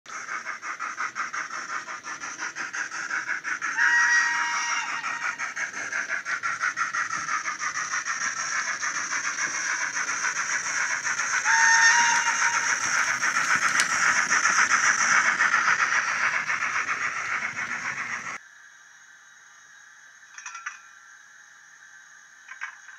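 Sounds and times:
steam locomotive exhaust chuffing: 0:00.1 - 0:18.4
two-tone train whistle: 0:03.7 - 0:05.6, 0:11.4 - 0:14.1.

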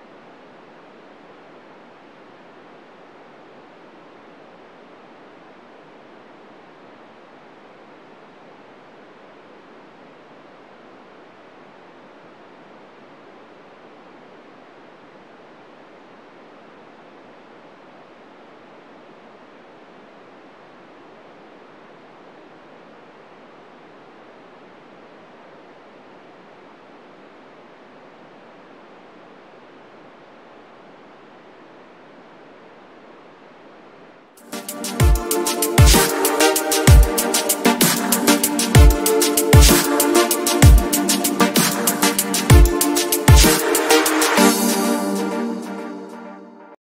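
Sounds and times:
radio static hiss: 0:00.0 - 0:46.2
loud electronic music: 0:34.4 - 0:46.4.

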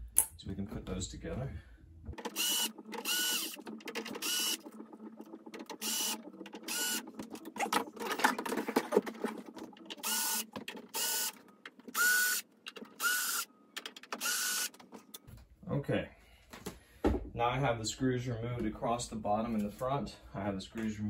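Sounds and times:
cordless drill whining: 0:02.3 - 0:03.6, 0:05.8 - 0:07.0, 0:10.0 - 0:12.4, 0:13.0 - 0:13.5, 0:14.2 - 0:14.7.

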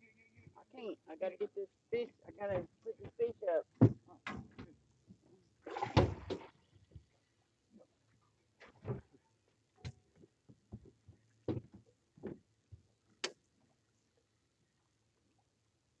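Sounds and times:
footsteps and bumps on boat deck: 0:09.8 - 0:12.9.

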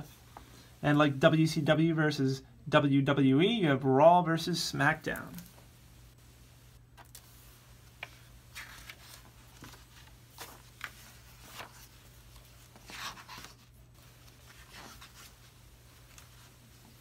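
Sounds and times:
book pages turning: 0:07.0 - 0:17.0.

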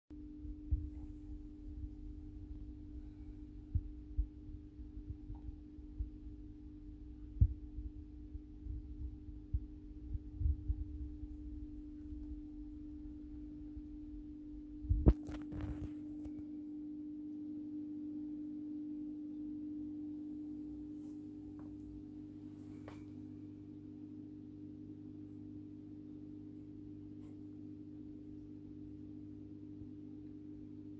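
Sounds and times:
steady low hum: 0:00.1 - 0:30.9
soft low bumps: 0:00.4 - 0:16.4.

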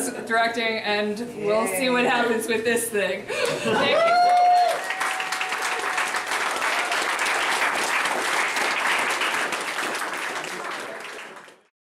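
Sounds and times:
audience applauding: 0:03.4 - 0:11.7.

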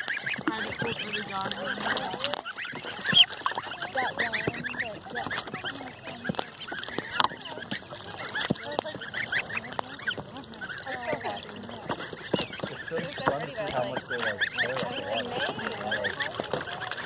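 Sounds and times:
ducklings and goslings peeping: 0:00.0 - 0:17.0.

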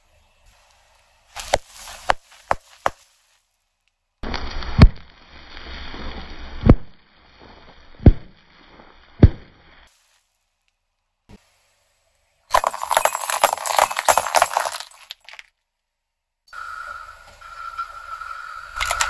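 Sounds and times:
glass light bulbs shattering: 0:12.5 - 0:15.5.

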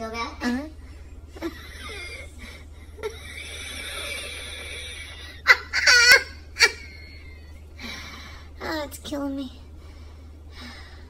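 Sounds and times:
woman laughing: 0:01.3 - 0:07.6.

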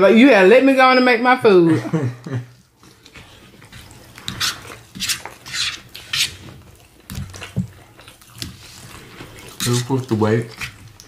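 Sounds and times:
chewing and mouth noises: 0:02.6 - 0:11.0
forks scraping on plates: 0:02.9 - 0:06.8, 0:08.4 - 0:10.9.

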